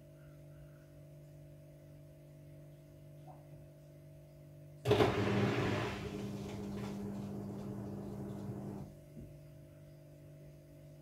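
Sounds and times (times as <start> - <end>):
drain pump humming: 4.8 - 9.0.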